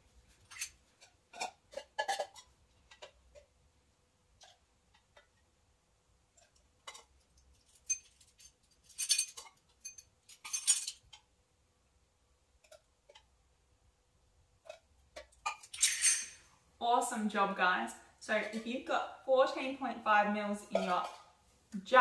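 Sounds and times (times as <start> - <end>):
spoon clinking against jugs: 15.5 - 16.4, 20.7 - 21.2.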